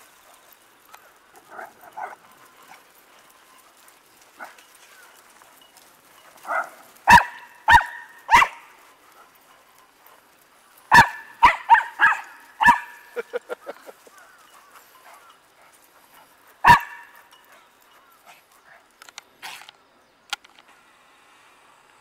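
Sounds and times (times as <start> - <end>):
dog barking: 1.5 - 2.2, 6.5 - 8.7, 10.9 - 13.3, 16.6 - 17.2.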